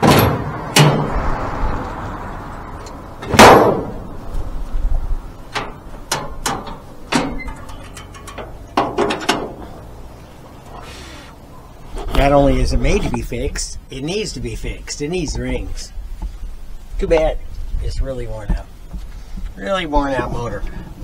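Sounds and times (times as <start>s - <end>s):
car hood clicks and knocks: 0.0s - 1.1s, 5.5s - 9.7s
loud clunk: 0.0s - 1.1s, 3.2s - 4.0s, 5.5s - 9.7s.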